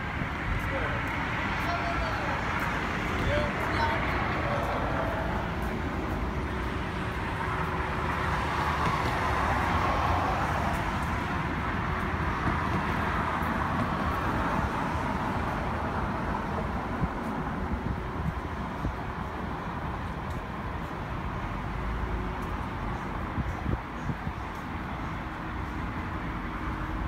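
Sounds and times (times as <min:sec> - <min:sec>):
distant road traffic: 0:00.0 - 0:27.0.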